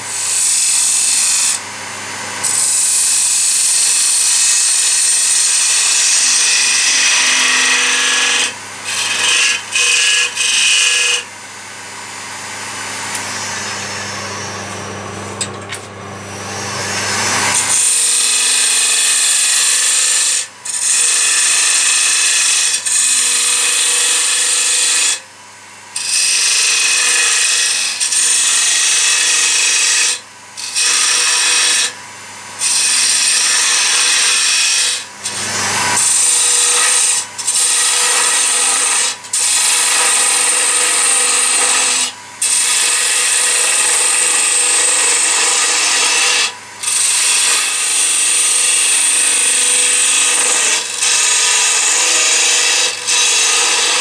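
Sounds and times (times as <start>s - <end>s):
lathe motor humming: 12.0s - 20.0s.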